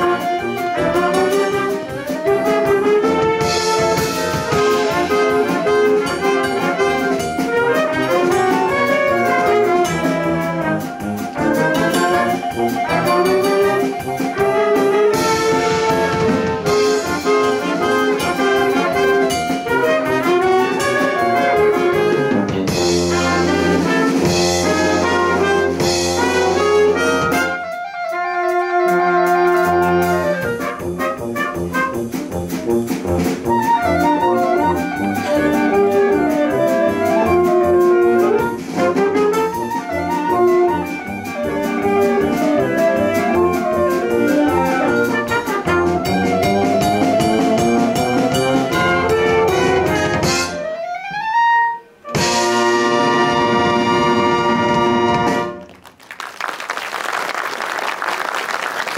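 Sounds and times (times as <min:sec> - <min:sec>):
wind band playing jazzy piece: 0:00.0 - 0:58.9
applause: 0:55.5 - 0:58.9.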